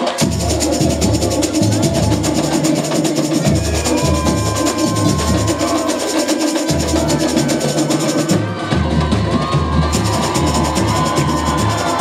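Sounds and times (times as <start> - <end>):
snare drums and small percussion: 0.0 - 12.0
deep bass drums beating: 3.4 - 6.0, 8.3 - 12.0.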